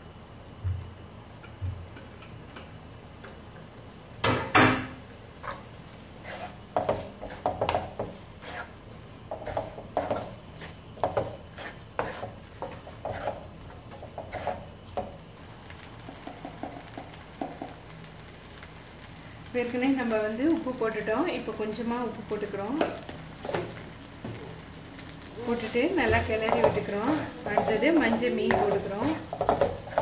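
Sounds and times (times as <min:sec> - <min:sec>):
spatula scraping metal pan: 0:06.2 - 0:14.7, 0:26.1 - 0:30.0.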